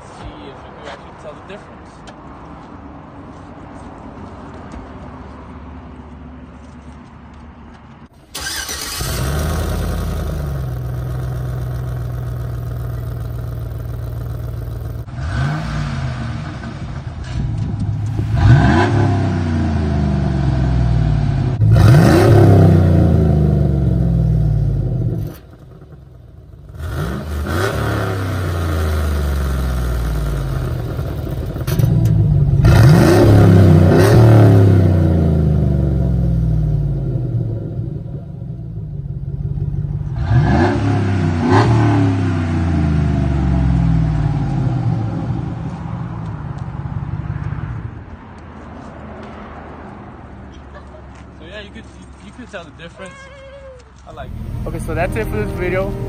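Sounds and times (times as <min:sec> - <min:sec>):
pickup engine starting and revving: 0:08.2 - 0:45.6, 0:54.1 - 0:56.0.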